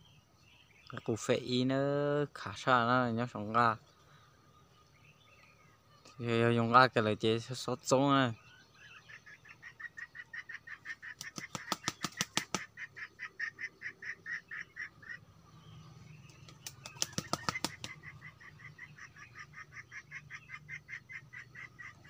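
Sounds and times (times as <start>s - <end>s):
rooster flapping wings: 11.1s - 12.7s, 16.3s - 18.1s.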